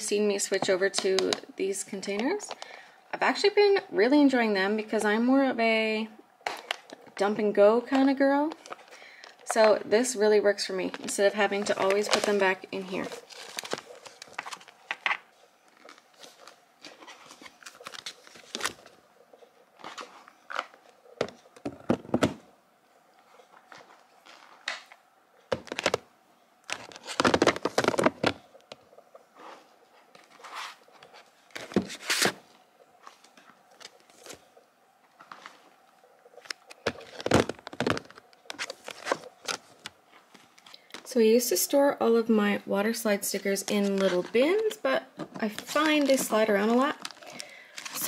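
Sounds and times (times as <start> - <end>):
rustling of decal sheets: 6.4 - 22.4, 23.2 - 41.2, 43.3 - 48.0
plastic containers tapping and clacking: 26.7 - 28.8, 36.4 - 39.9.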